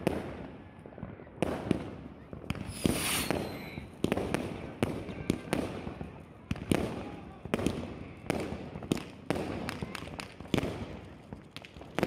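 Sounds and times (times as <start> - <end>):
fireworks bangs: 1.6 - 5.1
firework hiss and falling whistle: 2.5 - 3.9.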